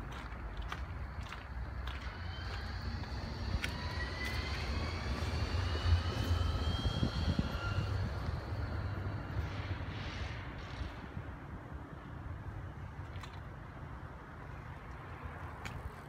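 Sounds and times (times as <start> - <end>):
tram wheels rumbling on rails: 0.0 - 12.5
electric drive whine: 1.8 - 11.2.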